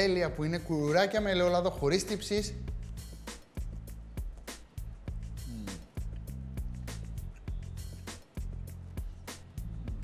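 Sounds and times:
music with steady beat: 0:00.0 - 0:10.0
held bass line: 0:09.6 - 0:10.0.

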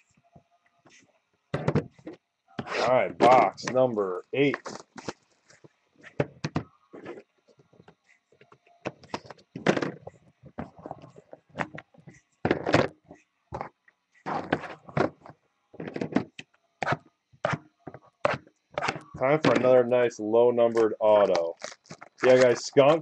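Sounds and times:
cardboard rustling: 0:21.2 - 0:23.0.

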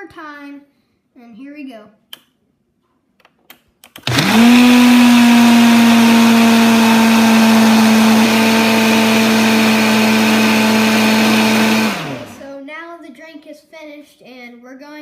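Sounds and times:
blender running: 0:04.0 - 0:12.5.

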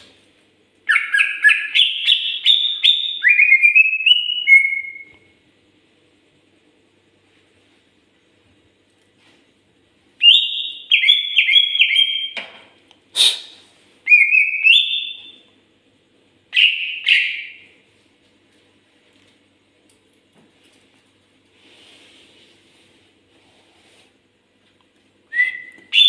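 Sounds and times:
bird singing whistled phrases: 0:00.9 - 0:05.2, 0:10.2 - 0:12.4, 0:14.1 - 0:15.4, 0:16.5 - 0:17.7, 0:25.3 - 0:26.0.

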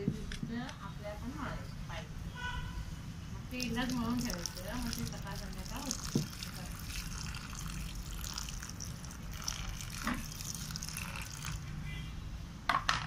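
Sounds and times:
water splashing into soil: 0:03.5 - 0:11.6.

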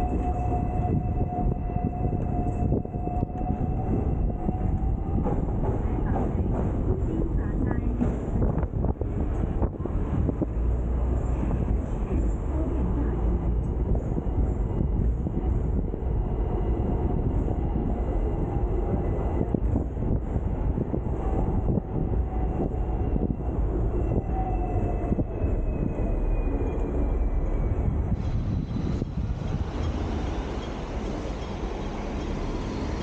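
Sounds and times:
tram rumbling on rails: 0:00.0 - 0:33.0.

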